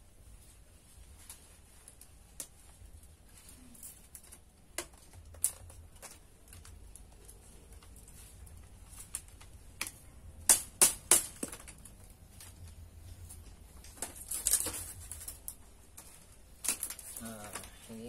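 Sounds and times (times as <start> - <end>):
bamboo scraping rustle: 0.2 - 9.7, 12.2 - 18.0
bamboo strips clicking: 3.8 - 12.8, 13.8 - 17.8.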